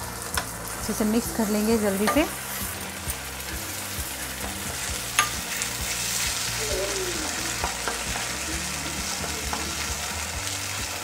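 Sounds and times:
sauce sizzling in a pan: 0:00.0 - 0:11.0.

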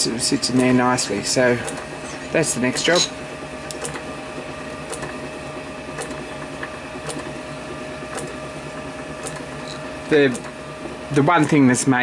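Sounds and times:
small motor humming: 0:00.4 - 0:12.0.

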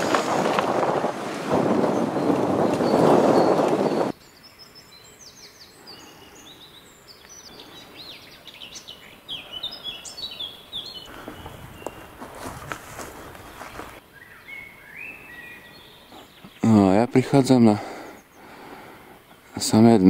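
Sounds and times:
bicycle tyres rumbling and rattling: 0:00.0 - 0:04.1, 0:11.1 - 0:14.0
rustling noise: 0:00.0 - 0:04.2, 0:11.1 - 0:14.0
wind on microphone: 0:00.0 - 0:04.2, 0:11.1 - 0:14.0
small birds singing: 0:01.6 - 0:20.0.

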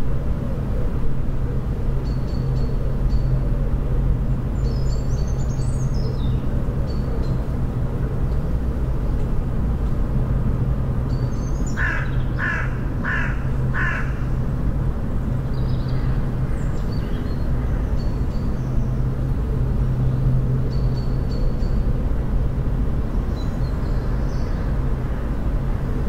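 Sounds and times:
crow cawing: 0:11.8 - 0:14.3.

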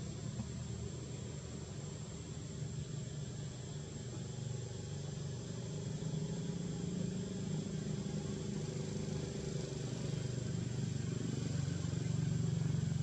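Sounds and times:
vehicle engine rumble: 0:05.0 - 0:13.0.

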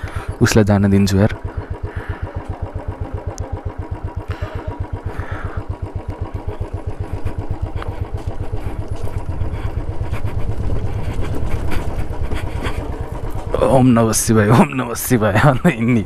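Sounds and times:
motorcycle engine thumping: 0:01.2 - 0:13.9.

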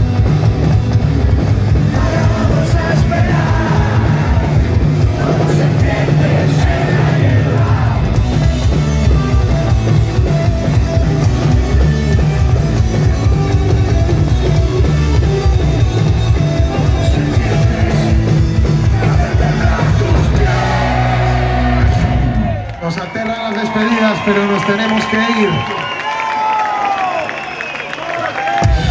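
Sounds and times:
punk rock band playing live: 0:00.0 - 0:22.6.

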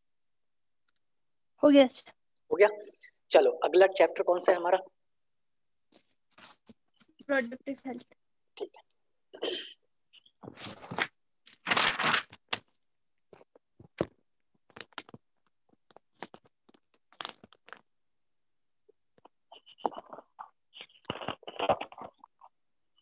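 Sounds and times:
rustling crackling noise: 0:10.4 - 0:17.9, 0:19.2 - 0:22.6.

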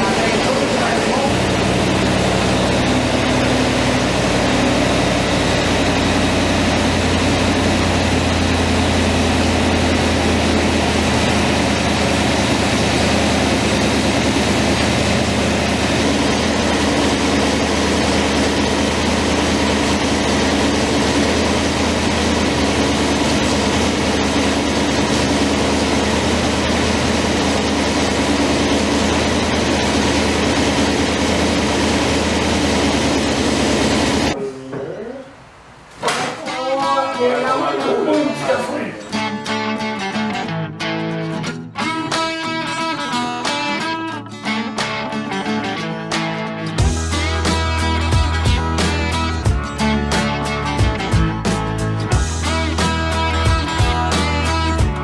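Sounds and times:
car engine idling: 0:00.0 - 0:34.4.

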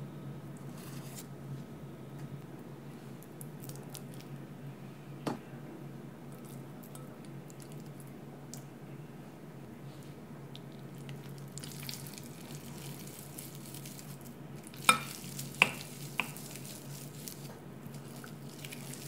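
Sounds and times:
low steady hum: 0:00.0 - 0:19.0
hands squishing boiled potatoes: 0:11.0 - 0:19.0.

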